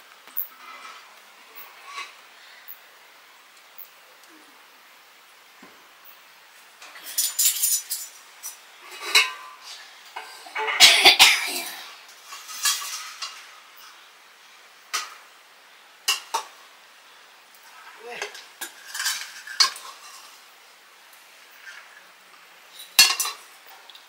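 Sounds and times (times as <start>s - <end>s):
utensils clinking against dishes: 6.8s - 9.6s, 12.3s - 13.4s, 18.2s - 20.3s, 22.8s - 23.5s.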